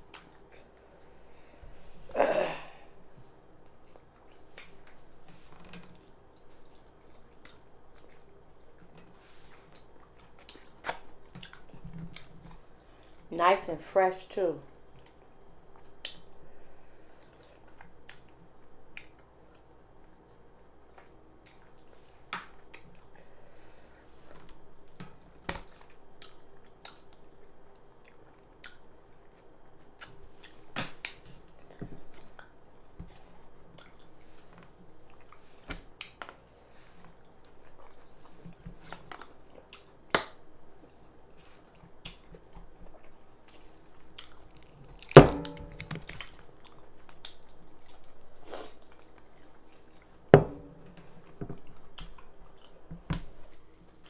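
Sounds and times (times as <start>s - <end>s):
person chewing: 0.0s - 0.8s, 3.6s - 13.2s, 14.8s - 16.4s, 17.1s - 19.8s, 25.6s - 36.4s, 37.0s - 40.1s, 40.8s - 54.0s.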